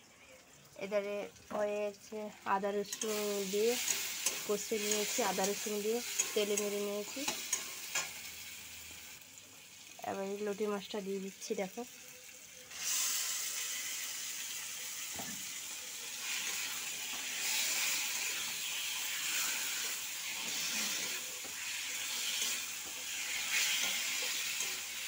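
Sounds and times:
fish sizzling in hot oil: 0.0 - 25.0
metal spatula stirring: 2.8 - 8.1, 16.3 - 25.0.

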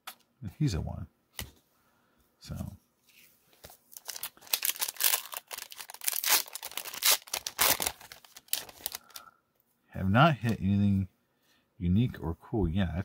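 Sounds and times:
foil wrapper crinkling and tearing: 3.9 - 9.2.

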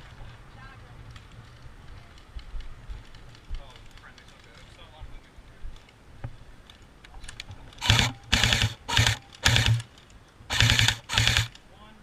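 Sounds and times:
airsoft rifle full-auto bursts: 7.8 - 9.9, 10.5 - 11.6.

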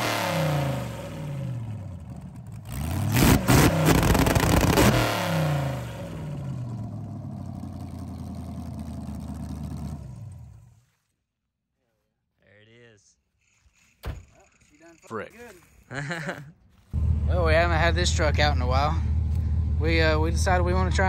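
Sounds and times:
car engine revving and idling: 0.0 - 11.0, 16.9 - 21.0.

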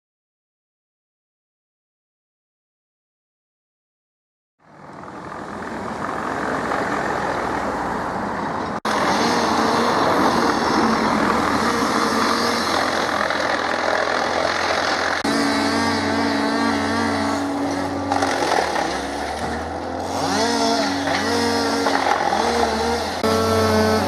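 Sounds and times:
wood chipper engine running: 8.9 - 24.0.

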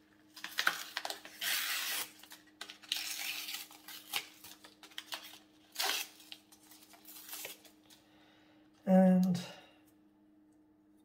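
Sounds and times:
plastic packaging tearing: 0.3 - 7.8.

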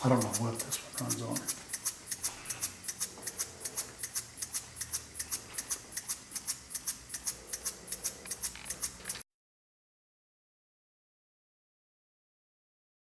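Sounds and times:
model steam engines puffing: 0.0 - 9.2.

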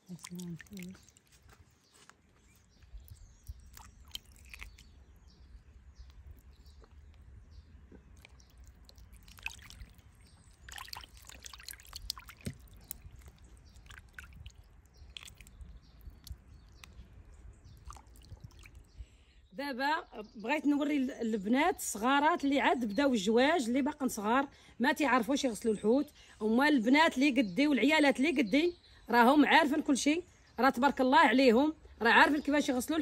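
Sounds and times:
water drips: 0.0 - 1.6, 2.8 - 5.0, 6.0 - 19.1
wet handling of fish: 0.0 - 5.1, 8.0 - 19.1.

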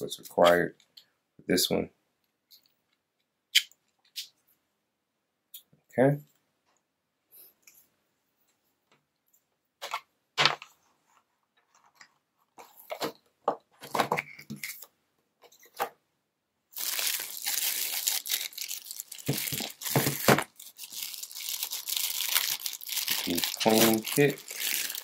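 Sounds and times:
plastic bag crinkling: 16.8 - 25.0
plastic packaging clicks and taps: 19.2 - 20.5.

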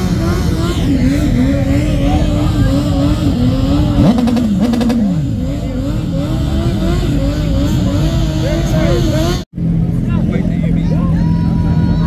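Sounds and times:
motorcycle engine revving: 0.0 - 10.7
engine crackles: 0.0 - 12.0.

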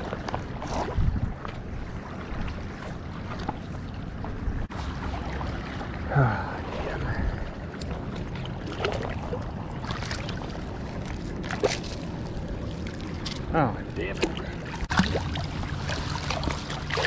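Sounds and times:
wind on microphone: 0.0 - 2.8
water sloshing and dripping: 0.0 - 17.0.

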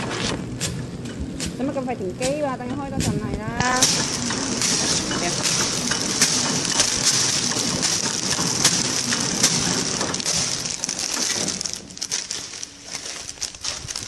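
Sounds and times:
sharp machine clicks: 3.0 - 12.1
machine hissing: 3.6 - 14.0.

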